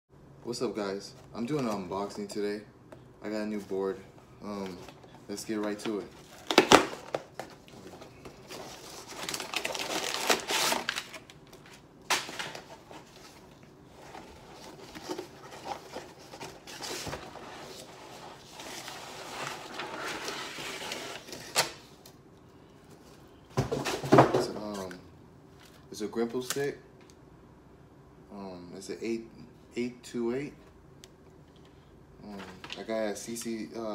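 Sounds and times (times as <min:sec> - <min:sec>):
cardboard and paper rustling: 0:04.4 - 0:21.6.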